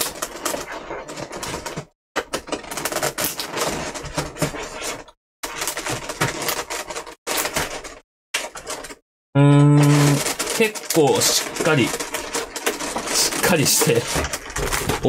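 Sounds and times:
plastic blister pack crackling: 0:05.4 - 0:15.0.

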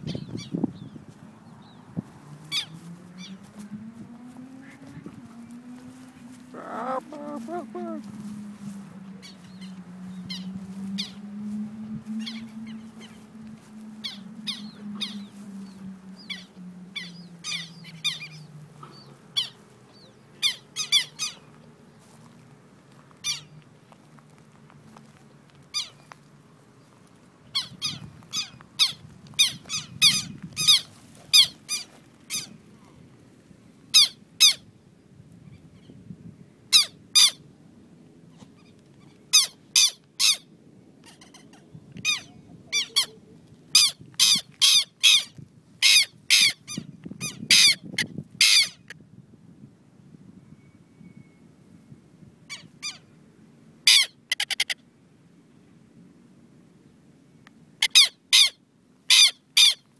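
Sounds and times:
lapwings giving sharp alarm calls: 0:06.5 - 0:08.1.

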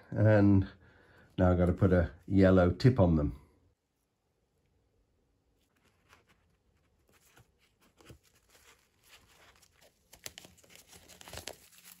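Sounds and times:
handling clicks and rustles: 0:05.6 - 0:12.0.

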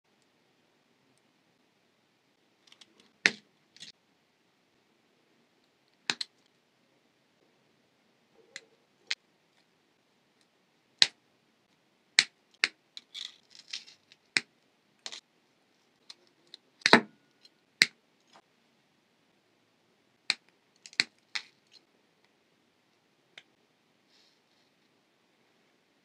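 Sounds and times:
handling crackle: 0:12.6 - 0:14.4.

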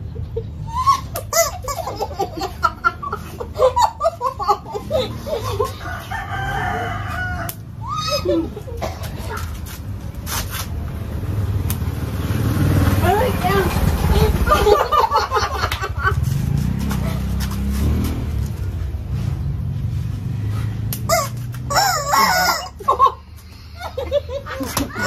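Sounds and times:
rubber chicken toy squeaking: 0:21.1 - 0:22.8.

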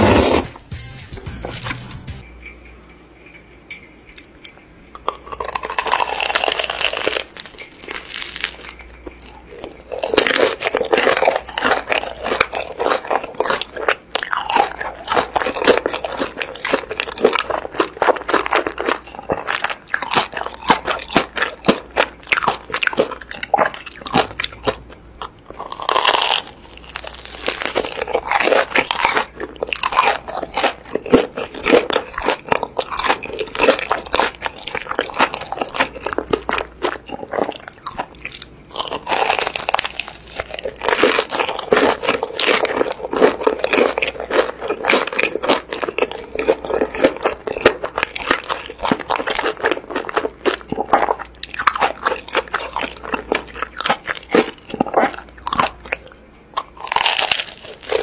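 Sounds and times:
crunching and chewing: 0:03.8 - 0:58.0.

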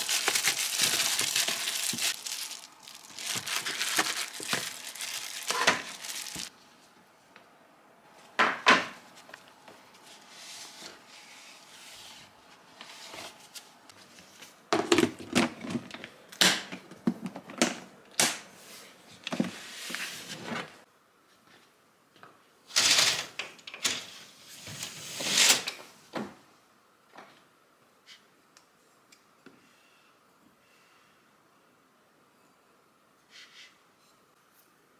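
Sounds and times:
rustling noise: 0:00.0 - 0:07.0.

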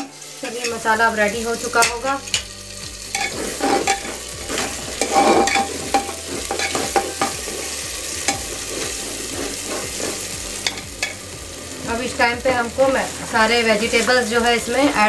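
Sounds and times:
spice paste sizzling in oil: 0:00.0 - 0:15.0
spatula scraping metal pot: 0:03.1 - 0:11.2.

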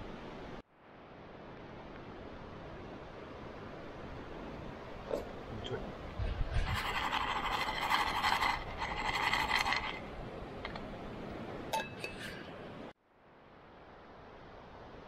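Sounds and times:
camping pot scraping and clinking: 0:06.5 - 0:10.9, 0:11.7 - 0:12.6.

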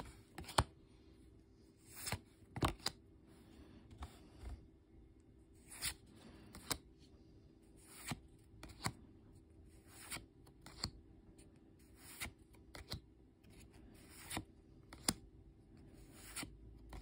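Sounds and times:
trading cards sliding and snapping: 0:00.3 - 0:00.7, 0:01.9 - 0:03.0, 0:05.6 - 0:06.9, 0:07.8 - 0:09.0, 0:09.9 - 0:11.0, 0:11.8 - 0:15.2, 0:16.0 - 0:17.0.

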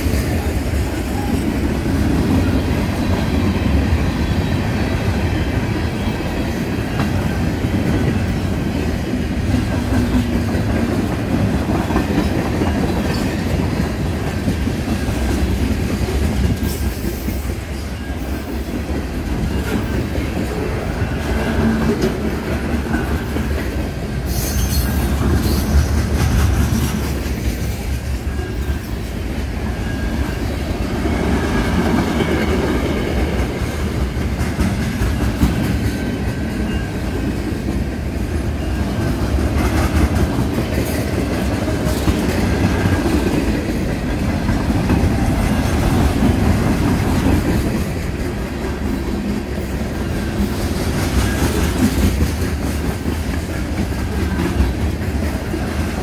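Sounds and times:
steel wheels rumbling on rails: 0:00.0 - 0:56.0
faint high wheel squeal: 0:17.2 - 0:18.7, 0:24.3 - 0:25.7.

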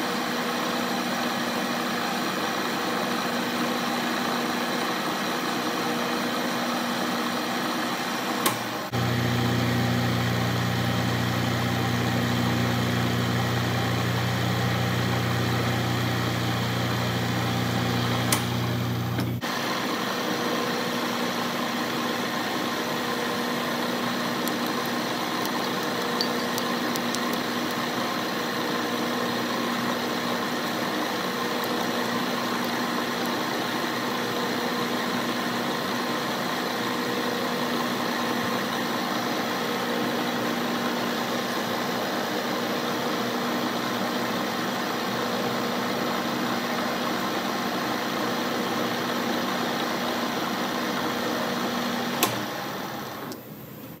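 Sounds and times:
sharp click: 0:08.4 - 0:08.7, 0:52.2 - 0:52.4
metal lathe running: 0:08.8 - 0:53.2.

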